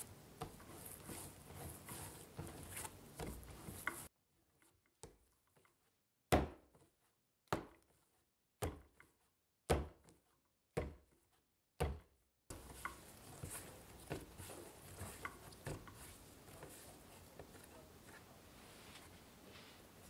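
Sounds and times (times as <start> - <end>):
dough squishing: 0.0 - 20.0
dough slapped on board: 6.3 - 6.7, 8.6 - 9.0, 9.7 - 10.1.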